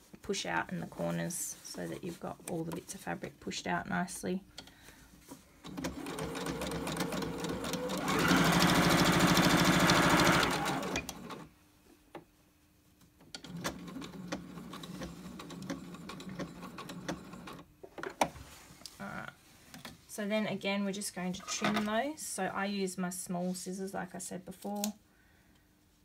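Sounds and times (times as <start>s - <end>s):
sewing machine stitching: 5.7s - 11.5s.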